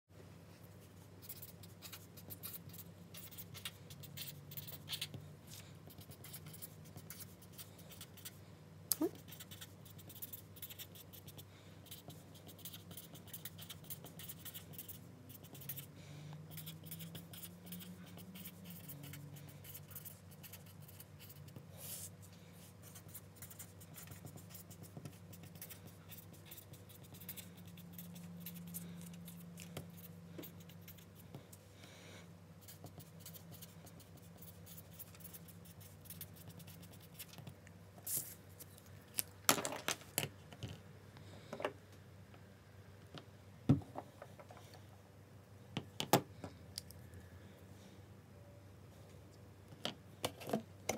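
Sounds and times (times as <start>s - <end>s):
faint low hum: 0.1s - 50.9s
marker scratching on paper: 0.9s - 8.4s, 9.0s - 15.9s, 16.5s - 31.4s, 32.6s - 37.4s.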